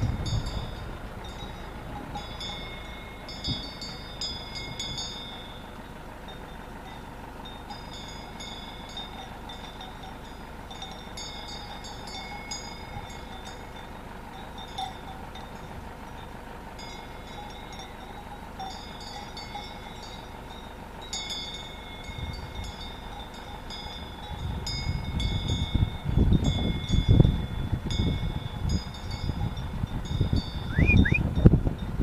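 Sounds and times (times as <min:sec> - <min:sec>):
wind buffeting microphone: 0:00.0 - 0:02.4, 0:24.0 - 0:32.0
steady low rumble: 0:00.0 - 0:20.0, 0:21.0 - 0:32.0
animal bells tinkling: 0:00.0 - 0:32.0.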